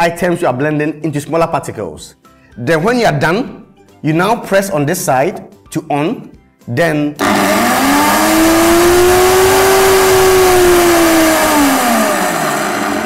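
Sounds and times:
blender motor whining: 7.2 - 13.0.

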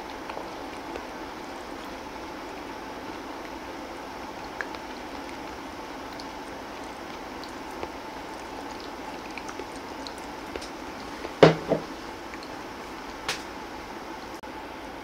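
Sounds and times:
bowl knocking on wooden table: 11.4 - 11.9.

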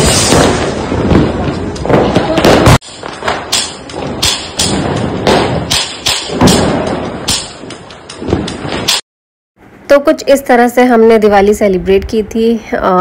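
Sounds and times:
firecrackers banging: 0.0 - 9.0.

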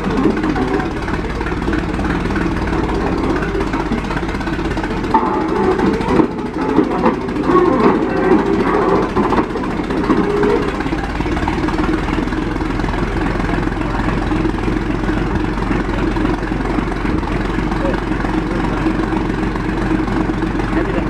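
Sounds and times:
tractor engine fast idle: 0.0 - 21.0.

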